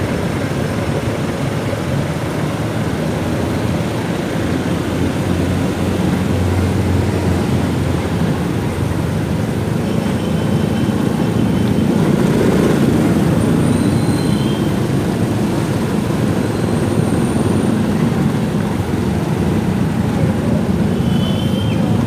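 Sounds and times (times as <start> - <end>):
road traffic noise: 0.0 - 22.0
faint high whistles: 13.6 - 14.7, 21.0 - 22.0.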